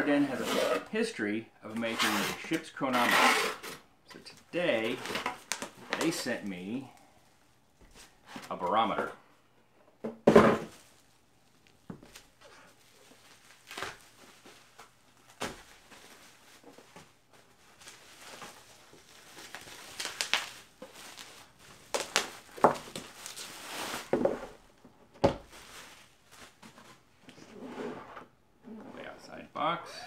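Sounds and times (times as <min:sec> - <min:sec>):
bubble wrap rustling and crinkling: 0:04.3 - 0:08.6, 0:10.7 - 0:27.1.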